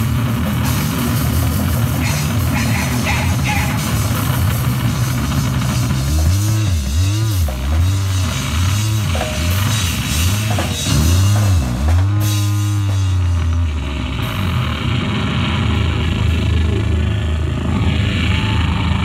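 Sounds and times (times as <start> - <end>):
drum kit: 0.0 - 14.8
electric guitar swooping low notes: 0.0 - 19.0.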